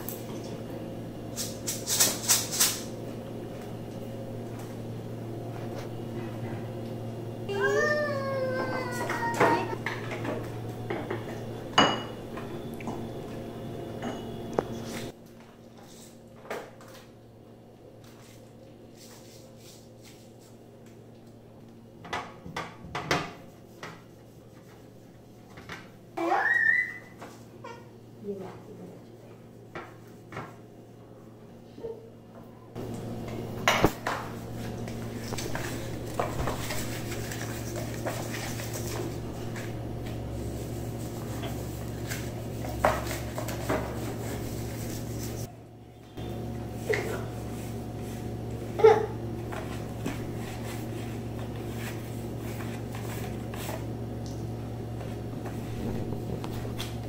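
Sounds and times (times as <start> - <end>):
steady low hum: 0.0 - 16.4.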